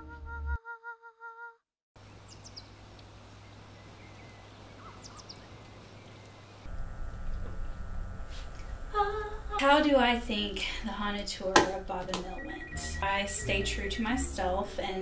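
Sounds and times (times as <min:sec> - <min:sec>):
bird chirps: 0:02.0 - 0:02.8, 0:03.4 - 0:06.7
steady low hum: 0:02.0 - 0:15.0
pulsing music: 0:12.0 - 0:14.9.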